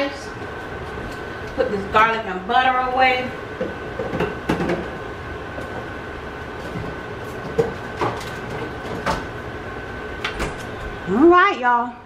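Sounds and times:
kitchen hum with high whine: 0.0s - 12.0s.

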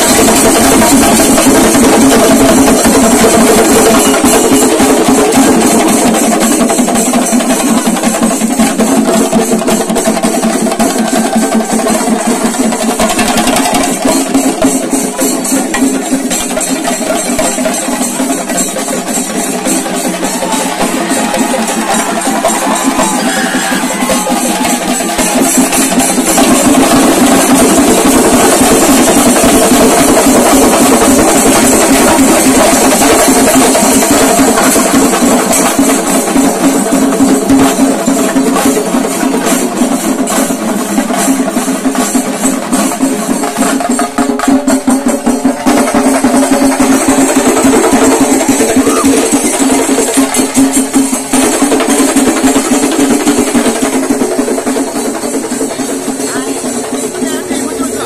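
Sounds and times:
ensemble of drums beaten fast: 0.0s - 58.0s.

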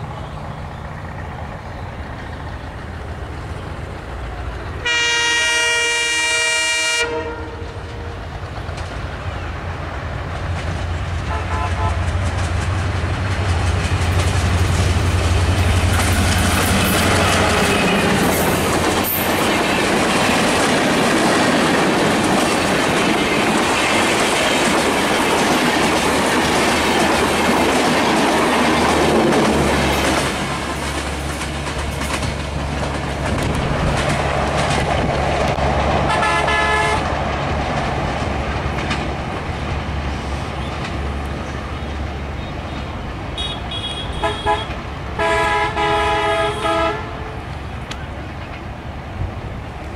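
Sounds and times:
diesel locomotive engine: 0.0s - 49.9s
train horn blast: 4.8s - 8.2s, 11.2s - 12.2s, 36.0s - 37.1s, 43.4s - 47.4s
train wheels clattering on rails: 7.0s - 49.9s.

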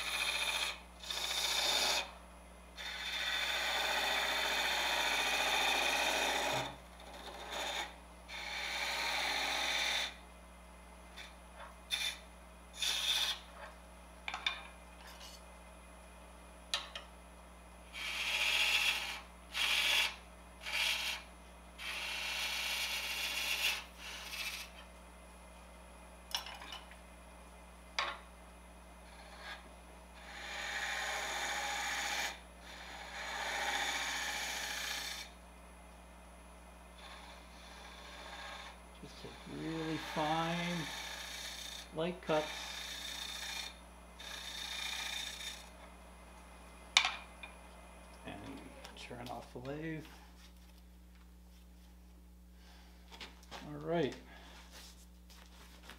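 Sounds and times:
turning tool scraping wood: 0.0s - 2.1s, 2.8s - 10.2s, 11.2s - 13.8s, 14.5s - 15.4s, 17.9s - 24.9s, 29.0s - 35.3s, 37.0s - 45.8s
wood lathe hum: 0.0s - 2.2s, 2.8s - 10.2s, 11.0s - 15.4s, 17.9s - 24.9s, 28.9s - 35.4s, 36.4s - 46.0s.

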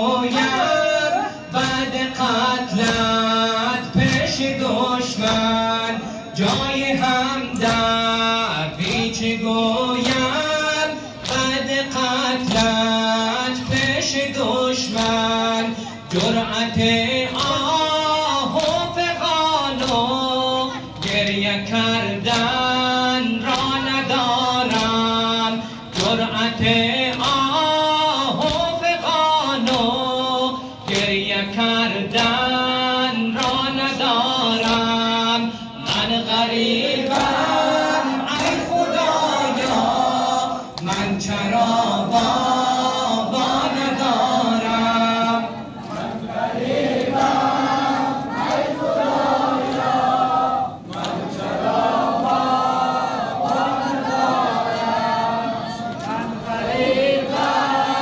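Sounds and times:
men singing a mourning chant: 0.0s - 58.0s
hands slapping chests: 37.0s - 38.9s.

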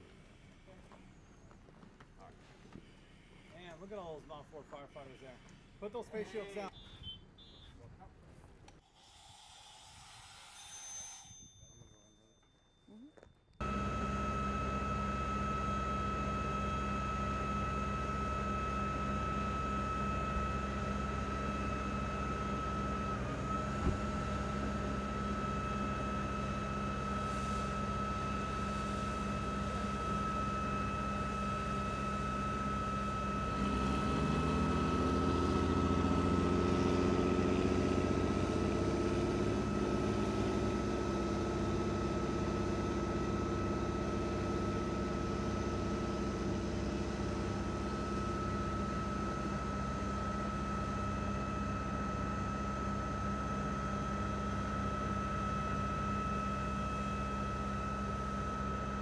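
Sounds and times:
steady hum with high whine: 8.8s - 34.2s
fire truck engine revving: 13.6s - 52.8s.

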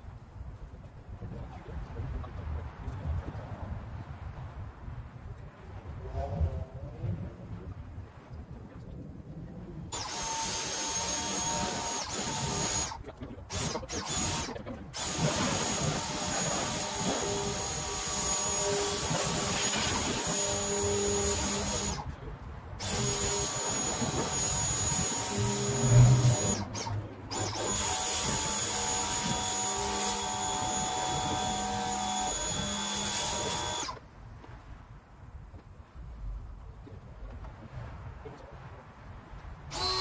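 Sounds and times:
pressure washer spraying water: 9.9s - 22.0s, 22.8s - 34.0s.

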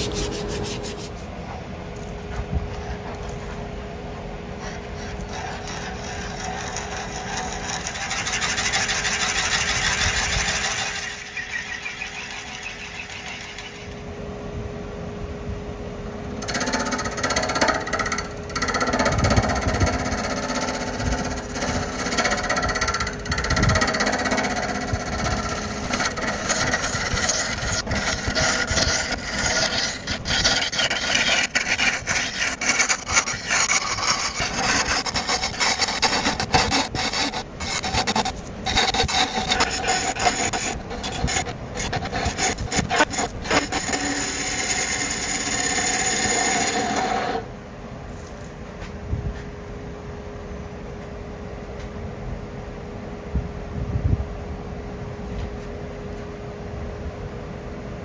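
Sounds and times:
hollowing tool scraping wood: 4.5s - 14.1s, 16.4s - 47.5s
wood lathe humming: 4.6s - 14.1s, 16.4s - 47.5s
drill bit boring into wood: 5.3s - 14.0s, 16.4s - 47.4s.

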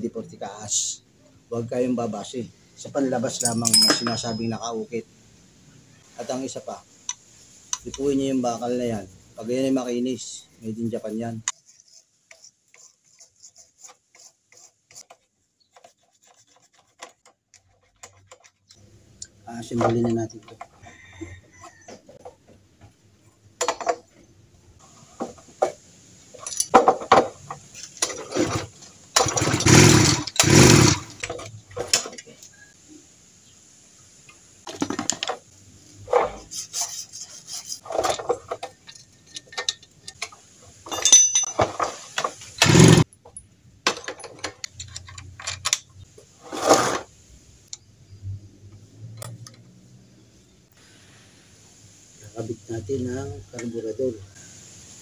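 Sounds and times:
metal engine parts clattering: 3.3s - 4.7s, 26.4s - 30.3s, 37.8s - 45.8s.

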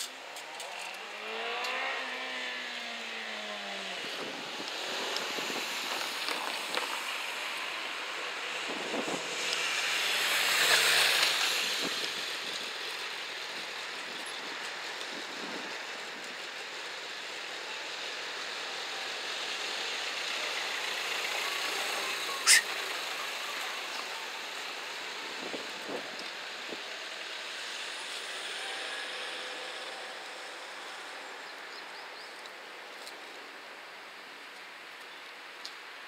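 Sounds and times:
car passing: 0.0s - 14.2s
road traffic noise: 0.0s - 36.0s.

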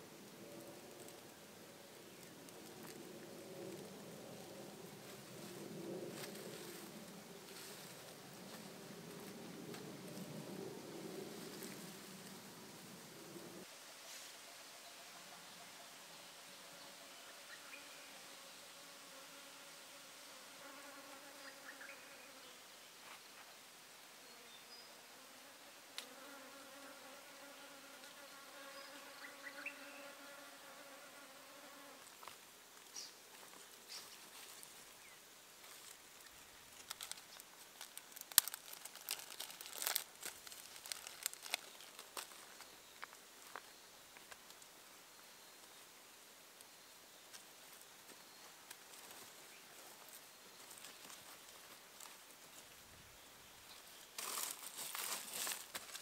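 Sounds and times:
flying insect buzzing: 16.6s - 22.5s, 25.0s - 32.3s
sharp snaps and crackles: 35.7s - 43.6s, 48.6s - 49.2s.

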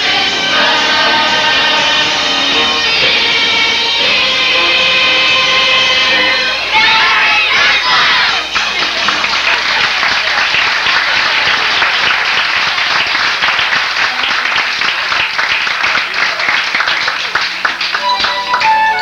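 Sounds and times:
music: 0.0s - 12.0s, 17.5s - 19.0s
audience applauding: 0.0s - 19.0s.

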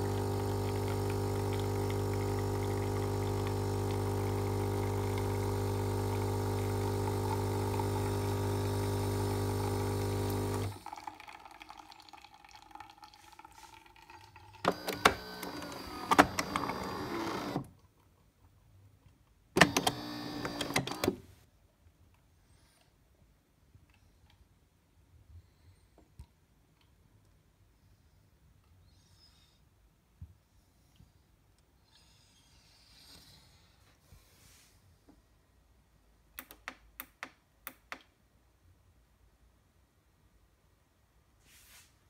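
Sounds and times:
espresso machine pump humming: 0.0s - 11.3s, 14.6s - 17.6s, 19.6s - 21.2s.

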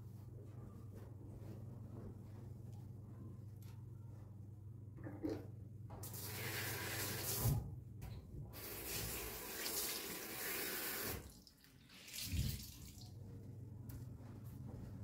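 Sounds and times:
water running from a tap: 6.1s - 7.4s, 8.6s - 12.8s.

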